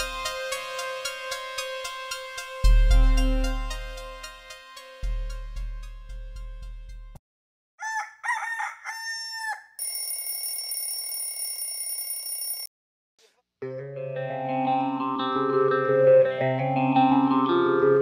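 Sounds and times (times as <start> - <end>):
background music: 0.0 - 7.2, 13.6 - 18.0.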